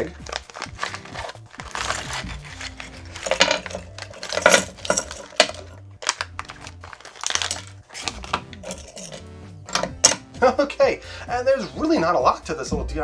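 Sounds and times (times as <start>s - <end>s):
plastic bag crinkling: 0.0s - 9.2s
small parts clinking on hard surface: 3.1s - 10.2s.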